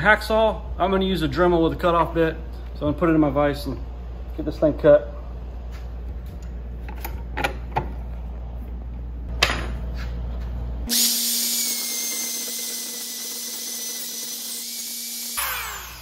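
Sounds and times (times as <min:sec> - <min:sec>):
rotary tool grinding metal: 0:10.9 - 0:16.0.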